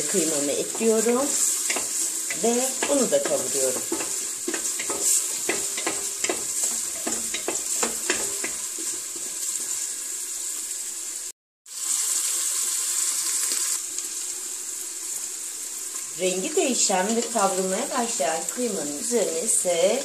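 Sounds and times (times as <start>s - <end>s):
wooden spoon scraping a pot: 0.0s - 9.8s
meat and onions sizzling in oil: 0.0s - 20.0s.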